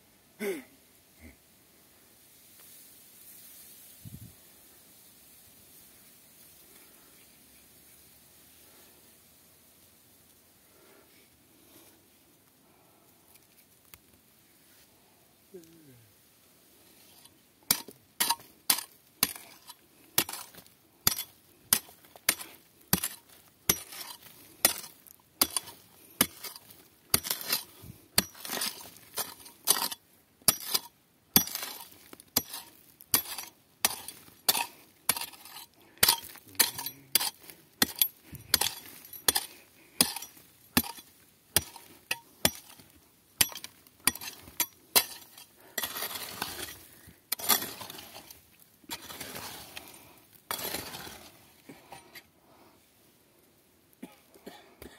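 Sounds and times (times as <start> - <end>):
hand pick striking rock: 17.7 - 48.2.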